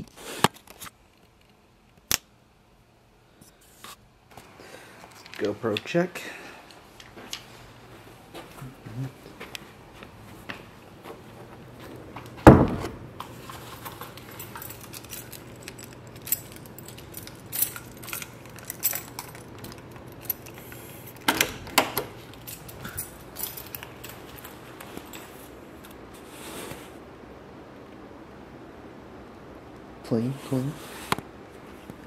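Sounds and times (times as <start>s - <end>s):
loud thump: 12.4s - 13.0s
keys jangling: 13.8s - 25.5s.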